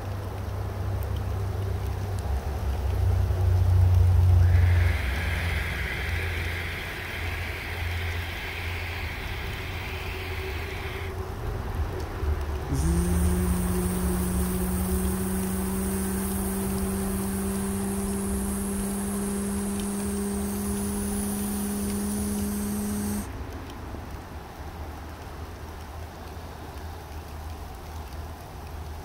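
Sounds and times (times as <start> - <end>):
steady hiss: 0.0 - 29.0
motor spinning up and humming: 4.4 - 11.2, 12.7 - 23.3.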